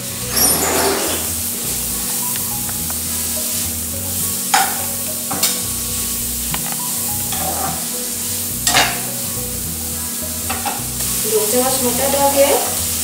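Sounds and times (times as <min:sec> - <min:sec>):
onions sizzling in butter: 0:00.0 - 0:13.0
steel spatula scraping a pan: 0:00.1 - 0:01.9, 0:07.2 - 0:08.0.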